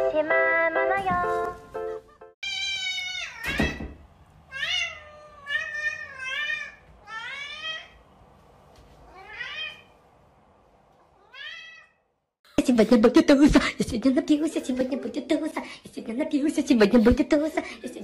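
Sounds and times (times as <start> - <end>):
cat meowing: 2.4 - 3.8, 4.5 - 8.0, 9.0 - 9.9, 11.2 - 12.0.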